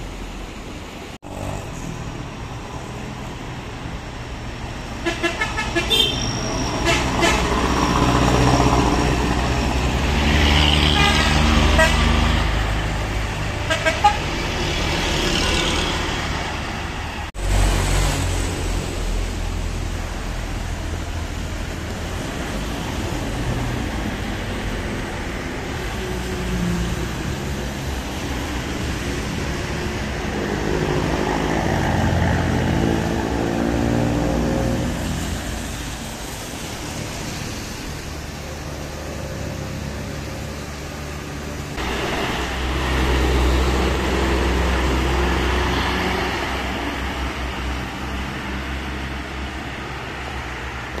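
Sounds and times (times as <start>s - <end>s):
diesel engines pulling uphill: 0.0s - 51.0s
horn toots: 5.0s - 8.1s, 10.7s - 12.2s.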